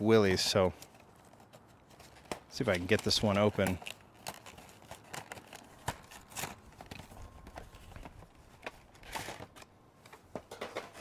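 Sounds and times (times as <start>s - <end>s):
rustling rip of packaging: 0.7s - 9.7s
packaging tearing and crackling: 0.8s - 9.6s.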